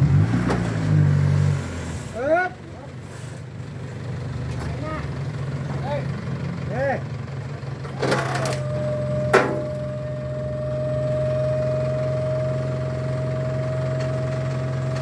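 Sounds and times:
truck engine idling: 1.6 - 15.0
hydraulic pump whine: 8.0 - 15.0.

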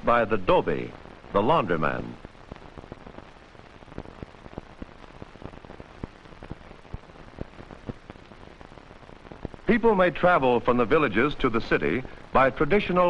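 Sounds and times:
old film surface hiss and crackle: 0.0 - 13.0.

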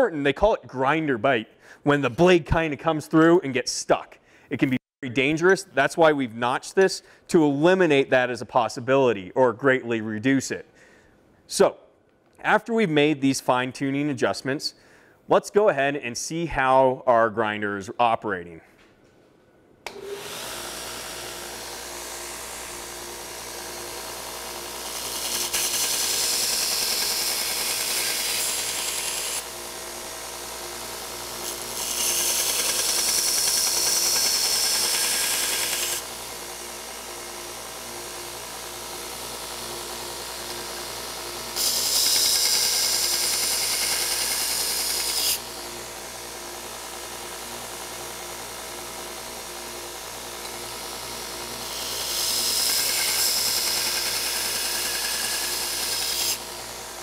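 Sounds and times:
belt grinder motor running: 19.9 - 57.0.

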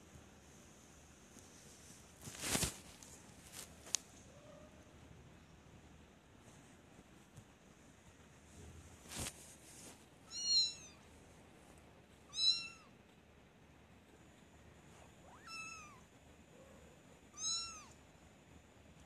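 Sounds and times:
kitten mewing: 15.3 - 16.1, 17.3 - 18.0.

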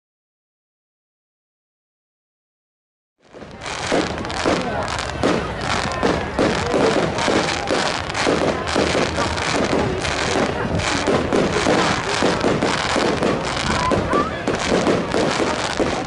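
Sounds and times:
fireworks bangs and crackles: 3.2 - 16.0.

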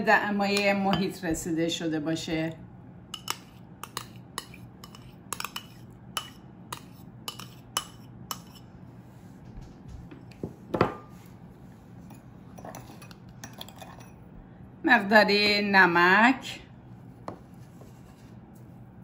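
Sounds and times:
metal spoon clinking on bowl: 3.2 - 8.6, 12.1 - 14.2.

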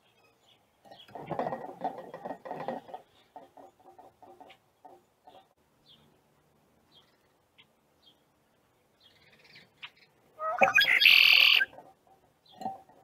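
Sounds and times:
faint high bird chirps: 9.0 - 11.7.

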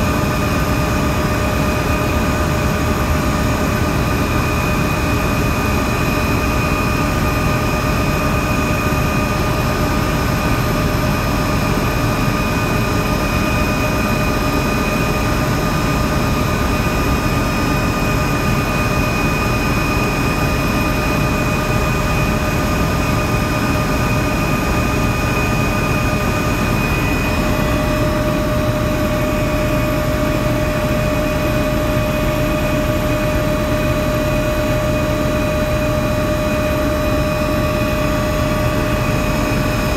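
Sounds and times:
helicopter engine and rotor noise: 0.0 - 39.9.

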